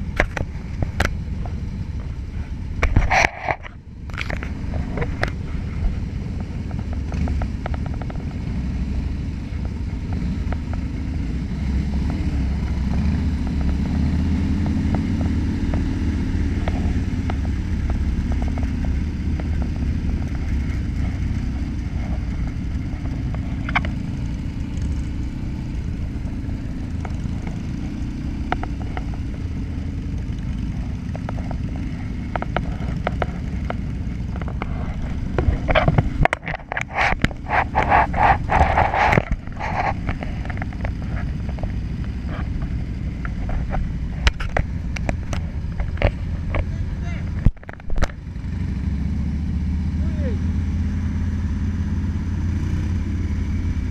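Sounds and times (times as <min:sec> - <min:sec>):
motorcycle engine running: 0:00.0 - 0:53.9.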